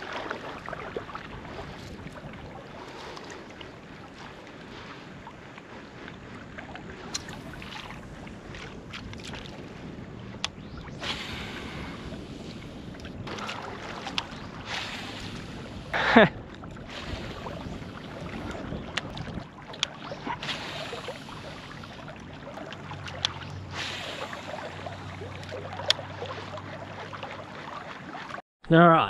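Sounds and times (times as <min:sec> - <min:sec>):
wading through shallow water: 0:00.0 - 0:28.4.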